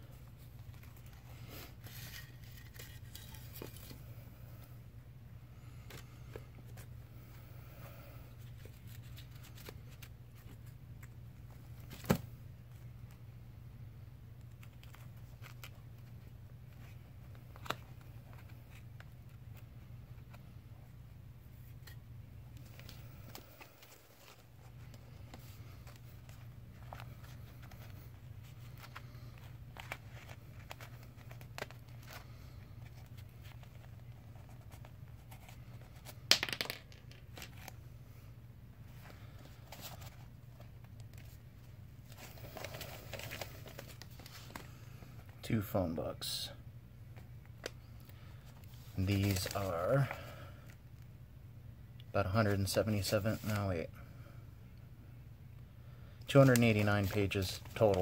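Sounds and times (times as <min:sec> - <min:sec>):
steady low hum: 0:00.0 - 0:36.3.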